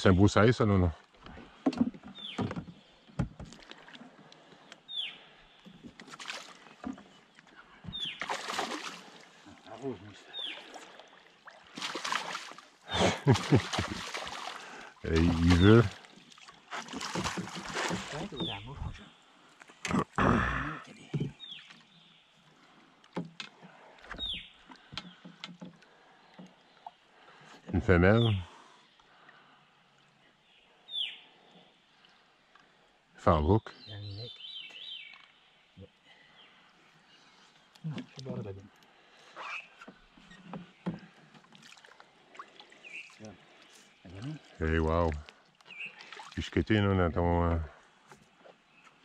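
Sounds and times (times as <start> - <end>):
water sloshing and splashing: 1.0 - 20.2, 20.9 - 27.8, 34.8 - 35.5, 36.6 - 46.6.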